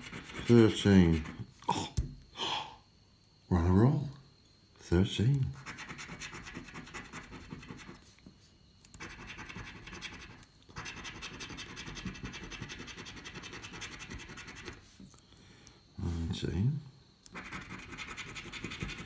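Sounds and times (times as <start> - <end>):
scratchcard being scratched: 0.0 - 1.4, 5.6 - 8.0, 9.0 - 14.8, 17.3 - 19.0.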